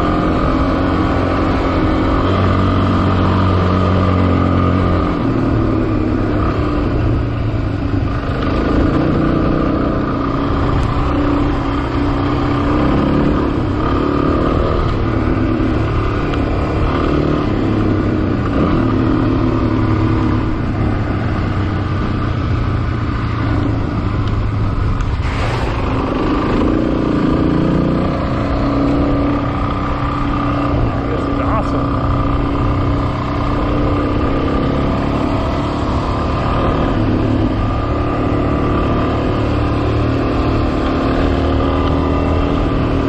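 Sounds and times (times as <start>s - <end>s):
motorcycle engine running: 0.0s - 43.0s
short rush of noise: 25.1s - 26.2s.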